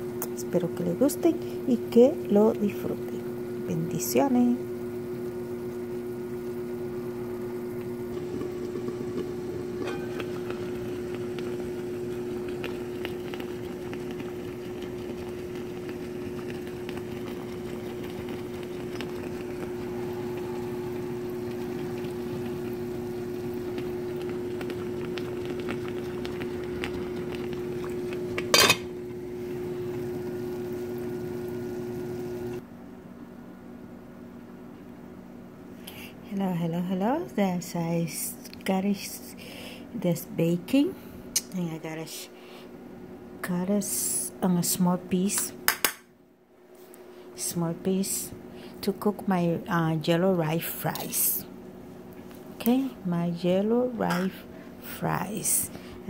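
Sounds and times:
steady hum: 0.0s - 56.0s
sauce simmering with pops: 4.9s - 32.6s
metal clattering against pot: 9.8s - 10.4s, 28.4s - 28.9s.

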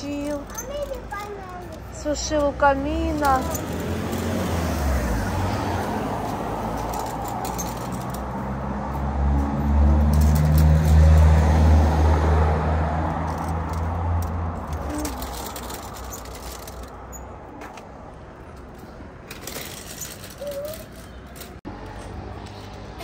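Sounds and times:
vehicle engine passing by: 3.5s - 16.2s.

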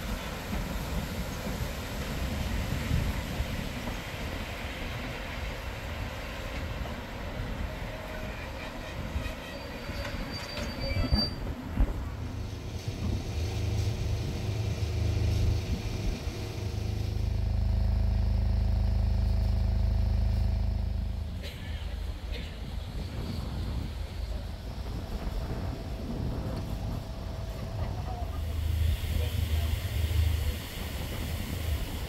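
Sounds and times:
train wheels on track: 0.0s - 17.4s, 21.2s - 32.0s
high wheel squeal: 8.1s - 11.6s
low engine hum: 12.2s - 32.0s.

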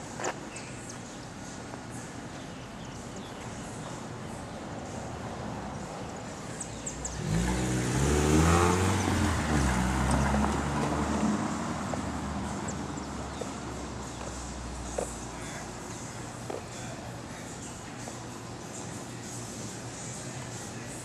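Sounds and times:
car accelerating past: 7.0s - 13.4s.

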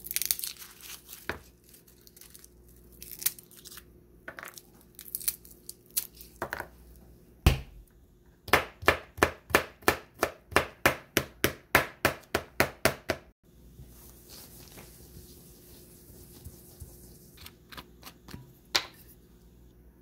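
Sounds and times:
knife chopping on plastic board: 8.5s - 13.3s.

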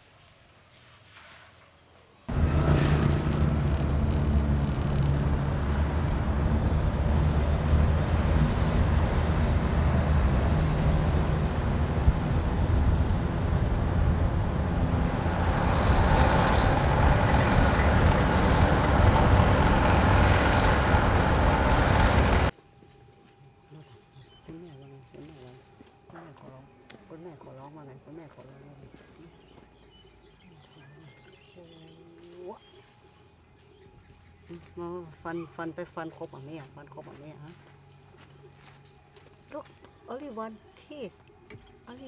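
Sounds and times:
rushing wind noise: 2.3s - 22.5s
vehicle engine and road hum: 2.3s - 22.6s.

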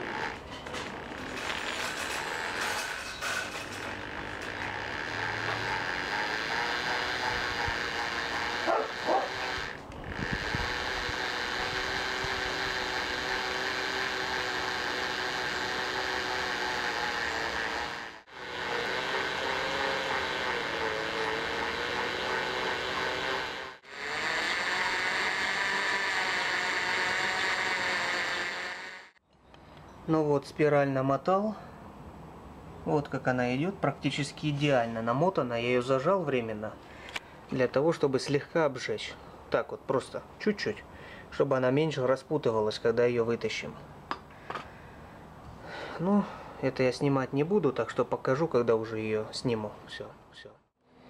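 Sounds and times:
electric motor running: 0.0s - 29.2s.

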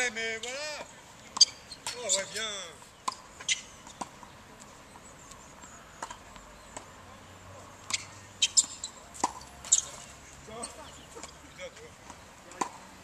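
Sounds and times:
tennis ball pocks: 7.8s - 12.9s.

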